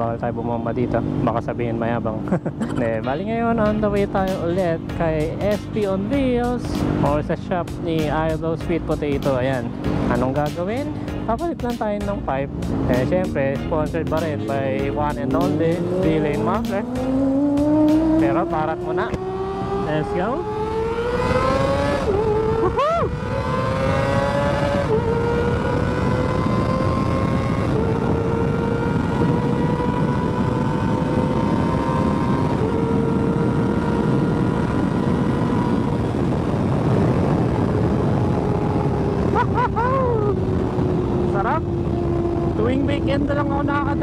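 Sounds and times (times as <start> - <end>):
motorcycle engine at high revs: 0.0 - 8.3, 12.3 - 44.0
wind rush on microphone: 14.2 - 44.0.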